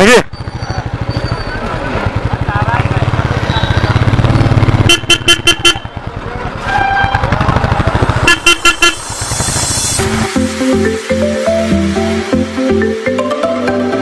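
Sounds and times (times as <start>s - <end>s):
vehicle horn short beeps: 4.8s - 5.9s, 8.3s - 9.0s.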